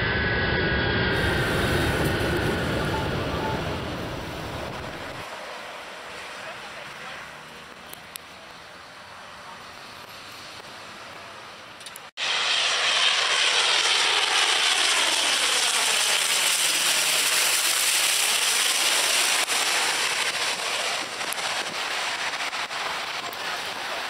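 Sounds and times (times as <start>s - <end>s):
turboprop plane passing overhead: 0.0s - 11.1s, 12.2s - 24.0s.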